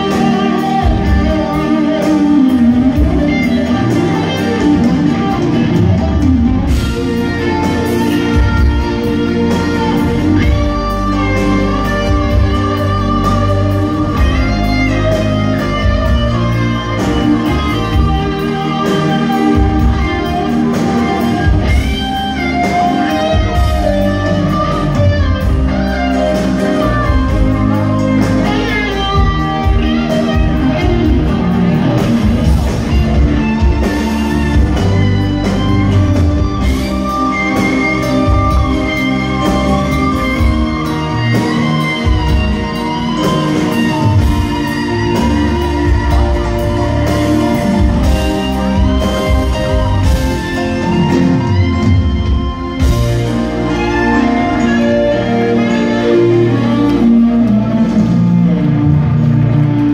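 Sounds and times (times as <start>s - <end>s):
live rock band playing: 0.0s - 59.9s.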